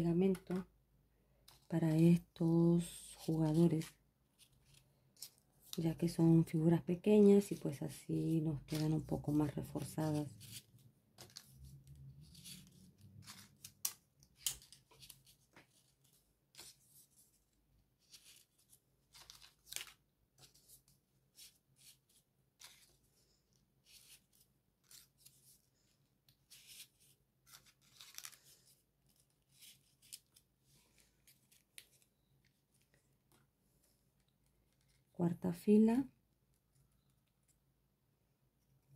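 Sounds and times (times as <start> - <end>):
paper rustling and ticking: 8.6 - 17.1, 18.0 - 35.1.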